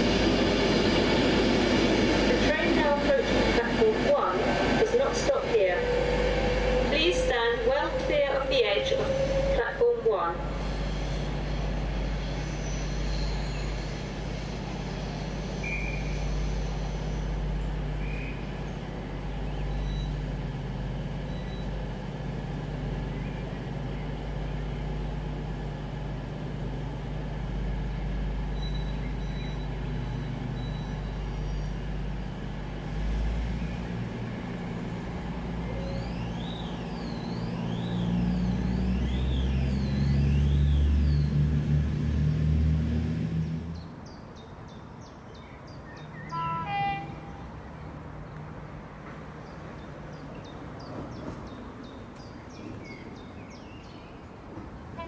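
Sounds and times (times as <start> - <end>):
diesel train engines idling: 0.0 - 55.0
sweeping warning tone: 3.7 - 18.5, 35.5 - 41.4.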